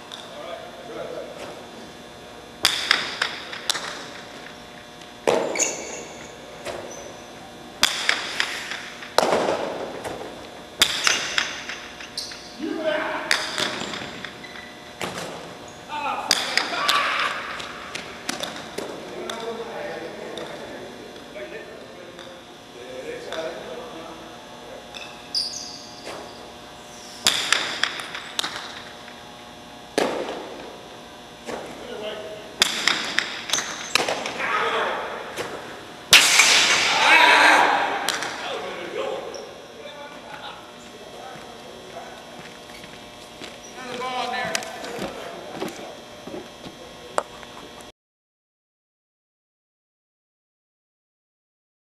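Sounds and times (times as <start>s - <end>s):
ball cracking against wall with echo: 2.6s - 4.2s, 5.2s - 5.9s, 7.8s - 12.1s, 13.3s - 14.3s, 16.2s - 19.6s, 27.2s - 28.9s, 29.9s - 30.7s, 32.6s - 34.4s, 35.2s - 38.6s
short high squeak: 5.6s - 6.3s, 25.3s - 26.0s
ball cracking against wall: 27.2s - 28.9s.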